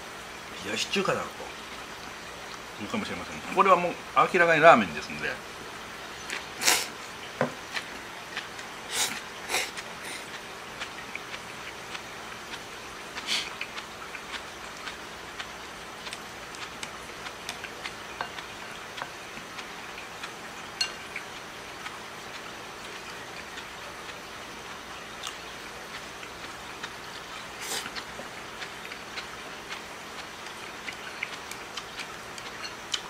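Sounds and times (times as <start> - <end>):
chewing: 7.6 - 33.0.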